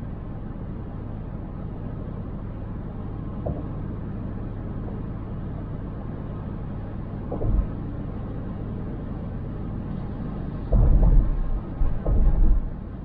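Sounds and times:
car driving rumble: 0.0s - 13.0s
low thud: 7.3s - 7.7s, 10.6s - 12.8s
low booming: 10.6s - 12.9s.

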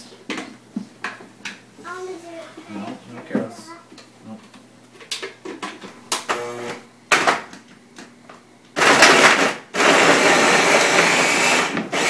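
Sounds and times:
blender motor running: 6.2s - 6.8s, 8.8s - 12.0s.

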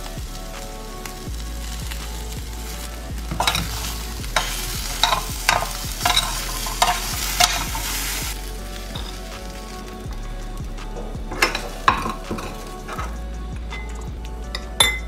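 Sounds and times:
steel spoon scraping metal pot: 3.3s - 8.3s, 11.0s - 15.0s.

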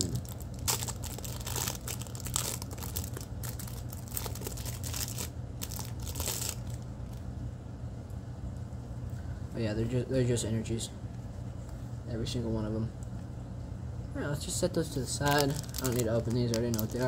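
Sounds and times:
plastic wrapper crinkling and tearing: 0.0s - 7.2s, 15.0s - 17.0s.

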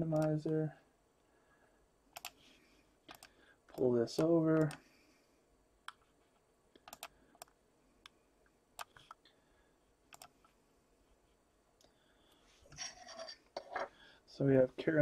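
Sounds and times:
computer mouse clicks: 0.1s - 0.6s, 2.1s - 2.4s, 3.0s - 4.8s, 5.8s - 6.1s, 6.7s - 8.2s, 8.8s - 9.2s, 10.1s - 10.5s
computer keyboard clicks: 2.2s - 2.4s, 3.1s - 4.8s, 6.8s - 7.6s, 10.1s - 10.3s.

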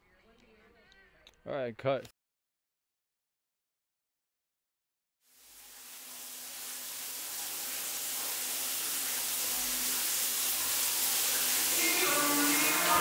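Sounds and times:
music: 11.4s - 13.0s.

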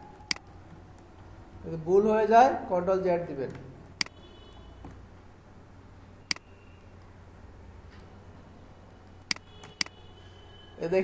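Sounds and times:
computer mouse clicking: 0.2s - 1.3s, 8.9s - 10.0s.

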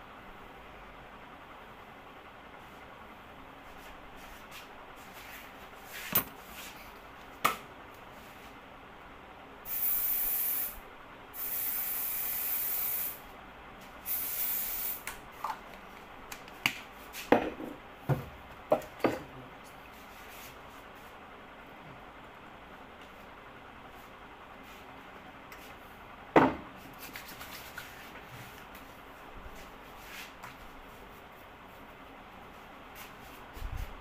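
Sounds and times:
aerosol spray hissing: 9.7s - 10.8s, 11.4s - 13.2s, 14.1s - 15.0s.

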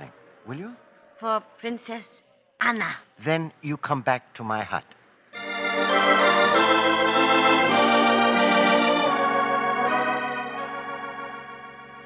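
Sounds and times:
organ chords: 5.4s - 12.0s.

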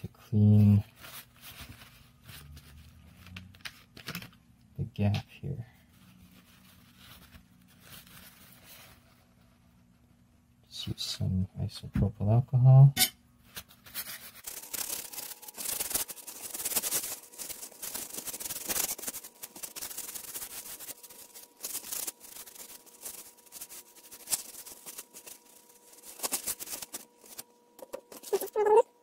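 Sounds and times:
paper towel rubbing metal: 14.0s - 28.8s.

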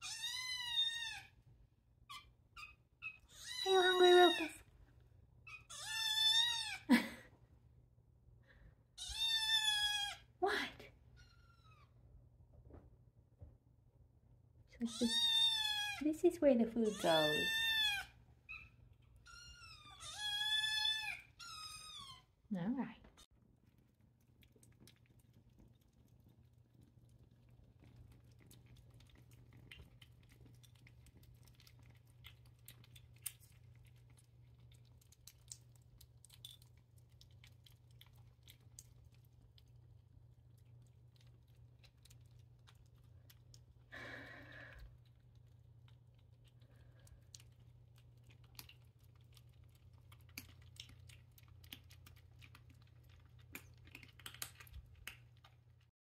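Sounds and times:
kittens chewing: 0.0s - 10.3s, 14.8s - 22.4s, 23.0s - 55.9s.

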